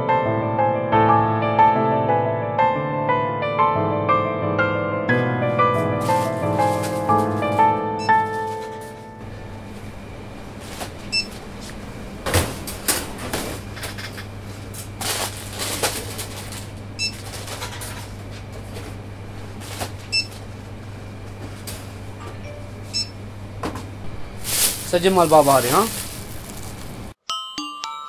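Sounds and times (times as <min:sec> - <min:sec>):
low electrical hum: 0:05.6 - 0:27.2
packets rustling and knocking: 0:05.8 - 0:09.0, 0:24.4 - 0:27.1.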